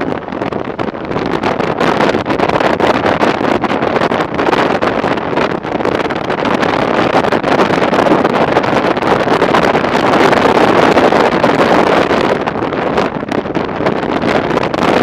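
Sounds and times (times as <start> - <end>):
wind rushing over microphone: 0.0 - 15.0.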